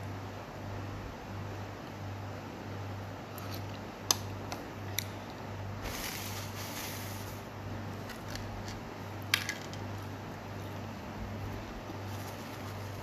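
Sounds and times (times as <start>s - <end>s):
soft rustle: 12.0s - 13.0s.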